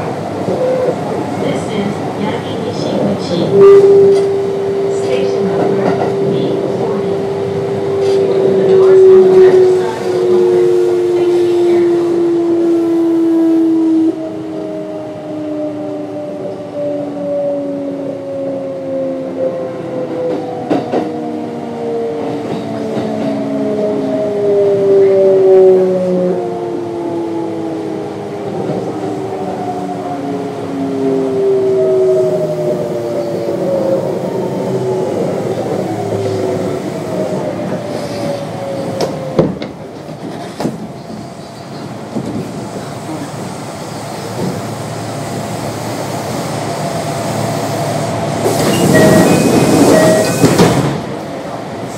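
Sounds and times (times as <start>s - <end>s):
train inverter whining: 0.0s - 51.9s.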